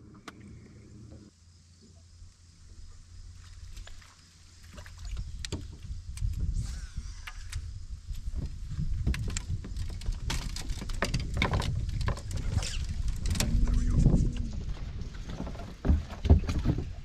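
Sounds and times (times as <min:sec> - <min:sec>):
low rumble on boat deck: 0:00.0 - 0:03.8, 0:05.0 - 0:17.0
rod and reel clicks and knocks: 0:07.2 - 0:13.8.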